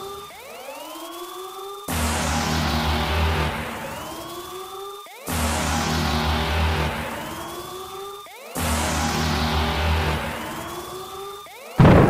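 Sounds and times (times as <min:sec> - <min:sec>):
deep boom: 0:11.8 - 0:12.0
loud thunderclap: 0:11.8 - 0:12.0.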